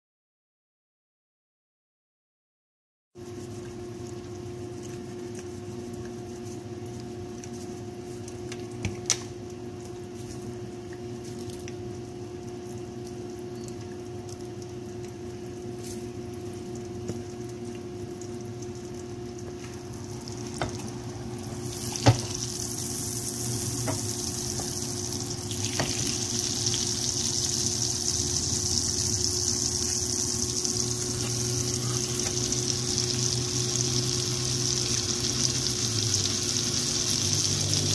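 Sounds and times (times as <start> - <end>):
steady low hum: 3.2 - 37.9
oil sizzling in frying pan: 19.9 - 37.9.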